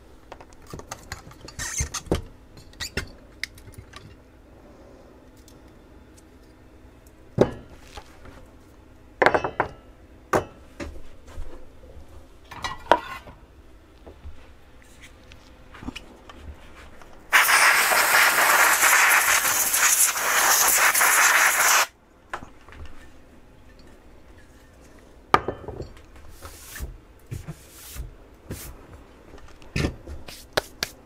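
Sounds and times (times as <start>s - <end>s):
loud rushing hiss: 17.3s - 21.9s.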